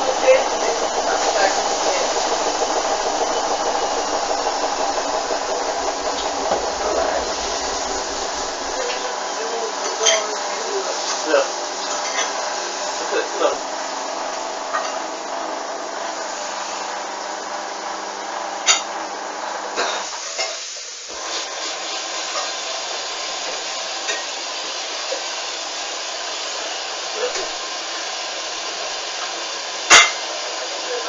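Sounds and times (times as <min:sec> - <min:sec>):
steady hiss: 0:00.0 - 0:11.9
washing machine hum with whine: 0:00.0 - 0:31.0.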